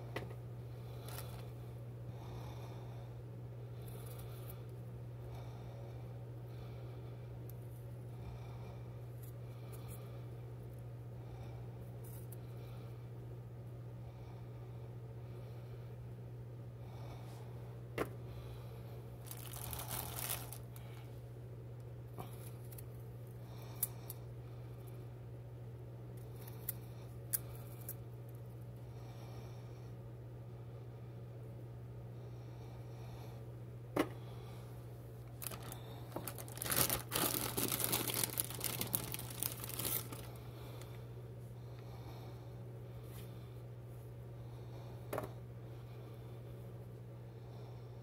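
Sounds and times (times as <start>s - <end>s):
low electrical hum: 0.0s - 48.0s
crisp crinkly rustling: 19.2s - 20.8s, 35.3s - 40.9s.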